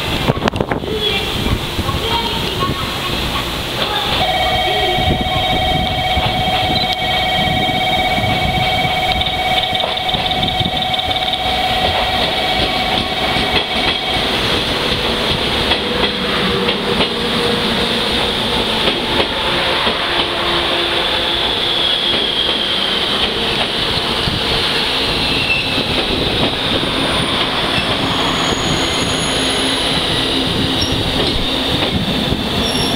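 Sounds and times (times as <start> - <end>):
high squeal of train brakes: 4.2 - 14.4, 20.8 - 23.1, 25.1 - 26.0, 26.7 - 31.5, 32.6 - 32.9.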